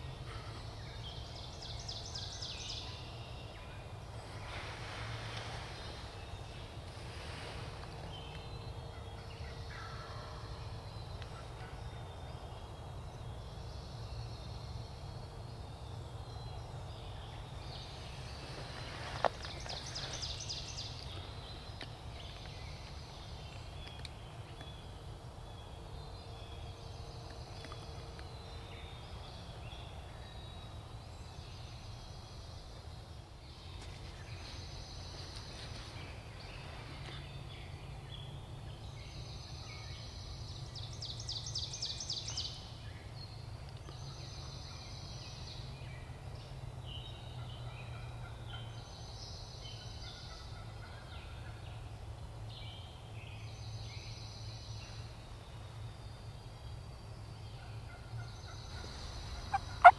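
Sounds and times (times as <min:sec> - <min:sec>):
high bird calls: 0:57.9 - 0:59.9
turkey gobbling: 0:58.8 - 0:59.9.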